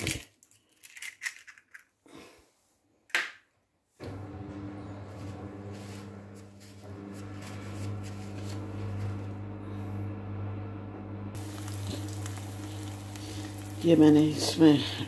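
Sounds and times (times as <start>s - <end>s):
low hum: 4.0s - 14.3s
food sizzling in a pan: 11.4s - 15.0s.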